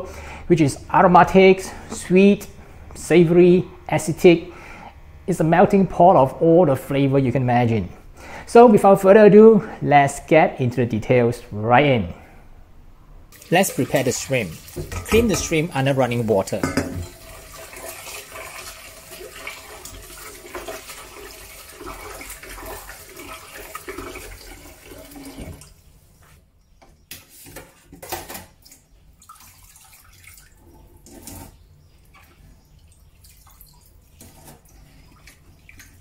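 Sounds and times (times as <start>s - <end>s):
splashes and knocks: 13.4s - 15.6s
tap running into bowl: 14.6s - 15.6s, 16.5s - 17.9s.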